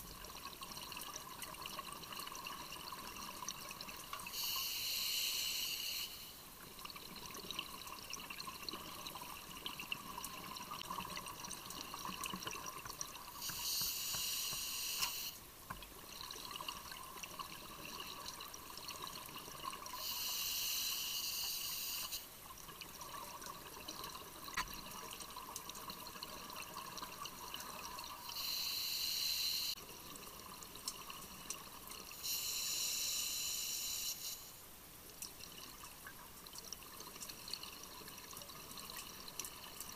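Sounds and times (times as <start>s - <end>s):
faint steady tone: 0.0s - 39.9s.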